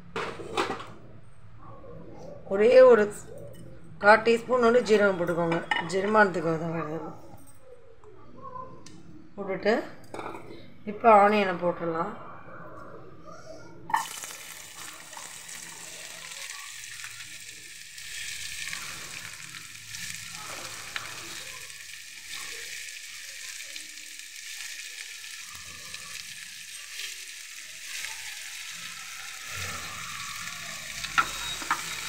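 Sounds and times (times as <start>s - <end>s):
onions sizzling in oil: 13.9s - 32.0s.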